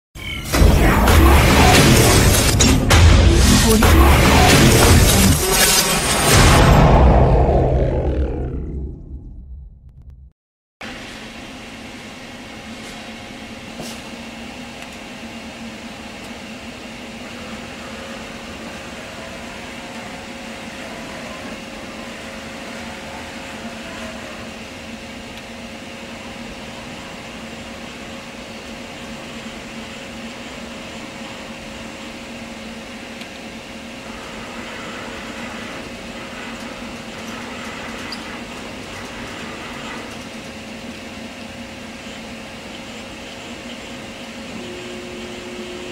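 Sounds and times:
machine electrical hum: 0:00.2 - 0:45.9
faint motor whine: 0:10.8 - 0:45.9.

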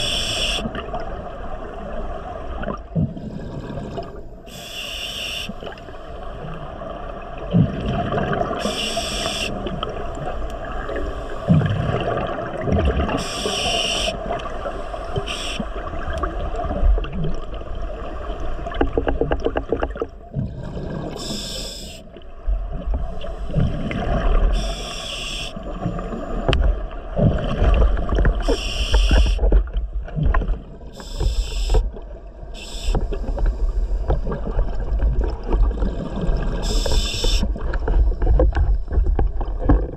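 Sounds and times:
regulator breath hiss: 0:00.0 - 0:00.7, 0:04.5 - 0:05.6, 0:08.6 - 0:09.6, 0:13.2 - 0:15.8, 0:21.2 - 0:22.1, 0:24.5 - 0:25.6, 0:28.4 - 0:29.4, 0:31.0 - 0:31.8, 0:32.6 - 0:33.9, 0:36.6 - 0:37.5
low water rumble: 0:00.0 - 0:39.9
bubbling water: 0:09.6 - 0:13.3.

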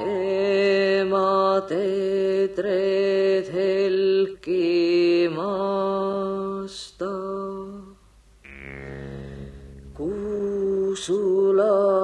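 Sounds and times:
low steady tone: 0:08.4 - 0:11.0.

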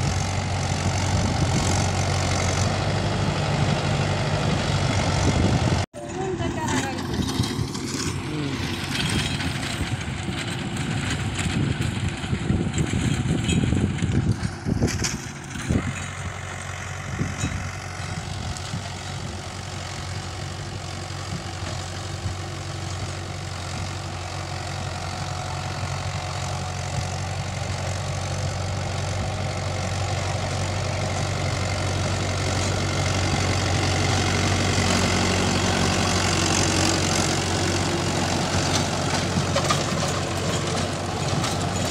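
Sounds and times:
tractor diesel engine running: 0:00.0 - 0:41.9.

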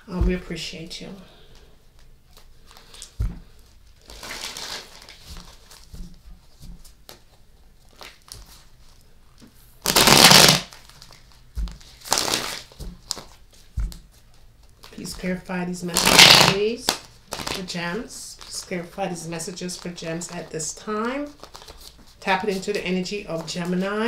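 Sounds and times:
cards being shuffled: 0:01.9 - 0:17.7, 0:21.2 - 0:24.0.

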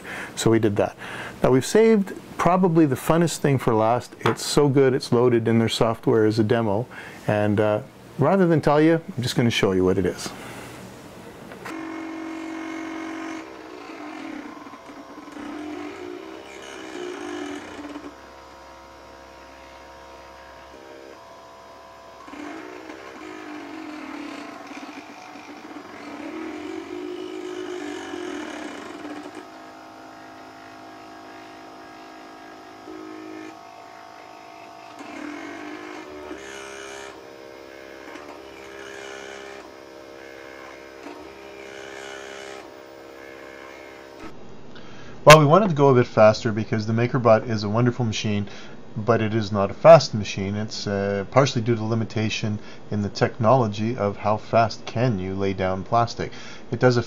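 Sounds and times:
stepper motors whining: 0:11.5 - 0:44.4.

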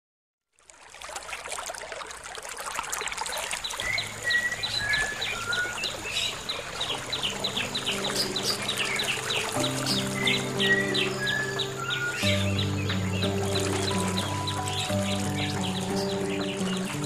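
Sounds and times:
running water: 0:00.5 - 0:17.0
birds chirping and whistling: 0:03.4 - 0:17.0
low held music notes: 0:04.1 - 0:17.0.

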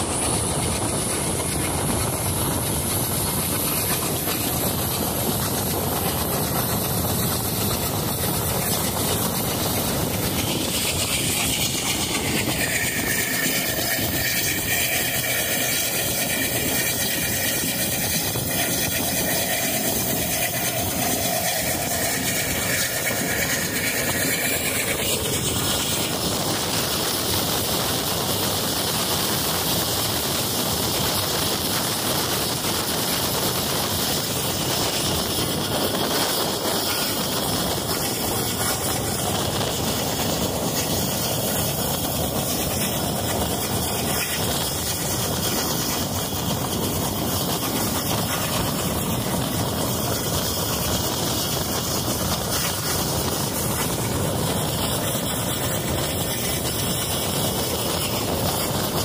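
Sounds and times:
train rumbling along track: 0:00.0 - 0:59.0.

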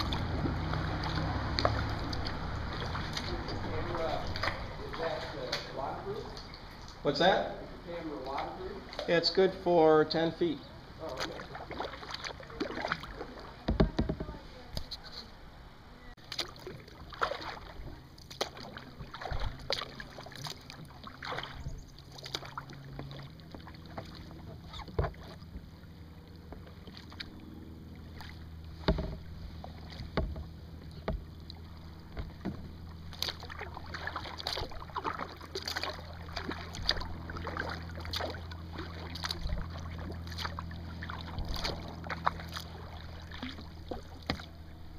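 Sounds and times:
paddle splashing in water: 0:00.0 - 0:07.0, 0:08.1 - 0:09.6, 0:10.9 - 0:15.0, 0:16.2 - 0:44.9
paddle knocks: 0:13.6 - 0:14.4, 0:22.2 - 0:25.7, 0:28.2 - 0:44.5.

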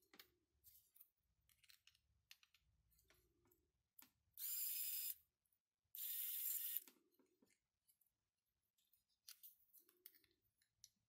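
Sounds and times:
small electric motor whirring: 0:06.0 - 0:06.8.

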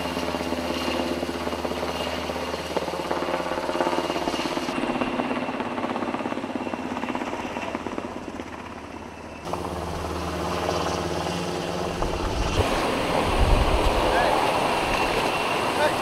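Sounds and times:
helicopter rotor chop: 0:00.0 - 0:16.0
low engine hum: 0:09.5 - 0:16.0.

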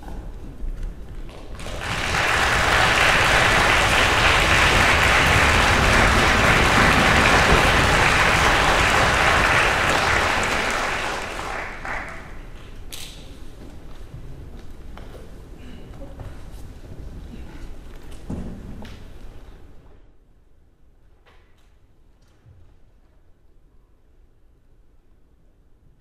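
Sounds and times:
audience applauding: 0:01.3 - 0:12.6.

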